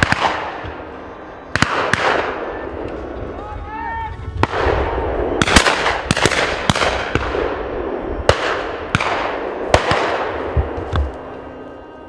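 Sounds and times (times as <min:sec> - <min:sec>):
shotguns firing with echo: 0:00.0 - 0:00.9, 0:01.5 - 0:02.9, 0:04.4 - 0:11.1.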